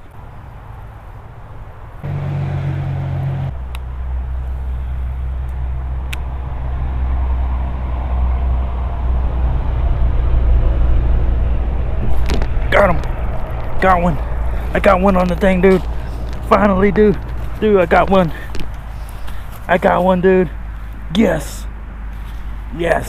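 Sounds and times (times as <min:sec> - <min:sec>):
motor engine humming: 0:02.0 - 0:22.0.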